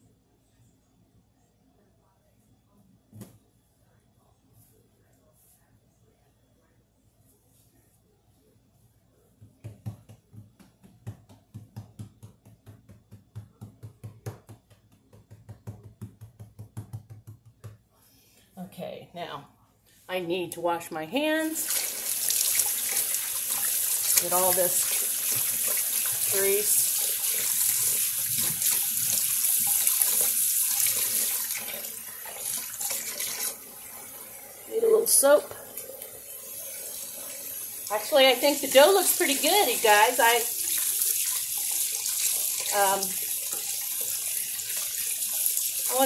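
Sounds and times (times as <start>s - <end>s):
hands patting dough: 9.3s - 18.0s.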